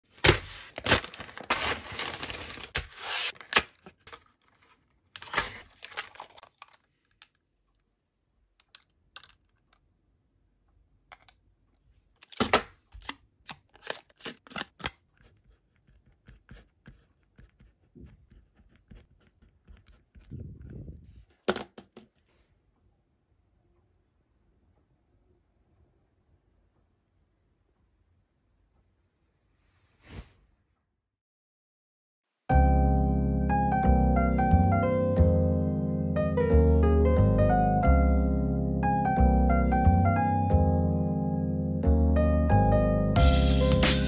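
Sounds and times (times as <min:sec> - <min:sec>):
paper mailer tearing and rustling: 0:00.0 - 0:06.8, 0:12.2 - 0:15.0
pen scratching on paper: 0:15.1 - 0:21.0.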